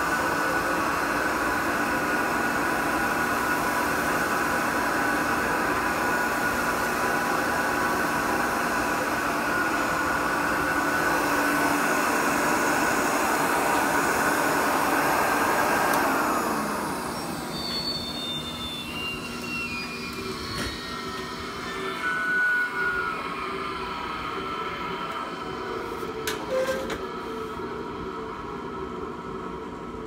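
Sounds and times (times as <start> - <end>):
motor spinning down whine: 0.0 - 25.8
vacuum cleaner motor running: 0.0 - 27.6.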